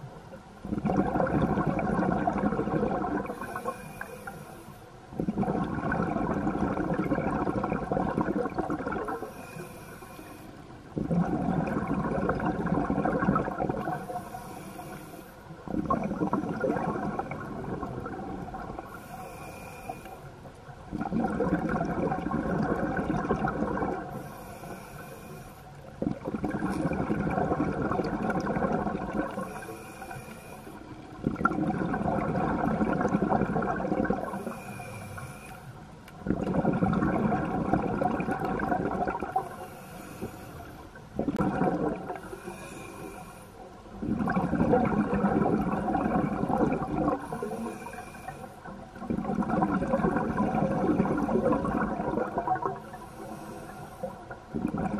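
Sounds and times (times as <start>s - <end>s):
bubbling diver exhalations: 0.6s - 3.8s, 5.2s - 9.6s, 11.0s - 14.3s, 15.7s - 19.4s, 20.9s - 24.3s, 26.0s - 30.1s, 31.2s - 35.1s, 36.2s - 40.2s, 41.2s - 42.8s, 44.0s - 48.2s, 49.0s - 52.8s, 54.5s - 54.9s
regulator hiss: 9.2s - 10.6s, 14.0s - 15.4s, 24.2s - 25.8s, 29.4s - 30.9s.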